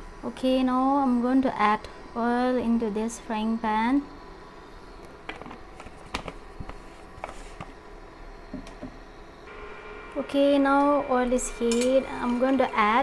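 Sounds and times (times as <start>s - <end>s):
low steady hum: 7.8s - 13.0s.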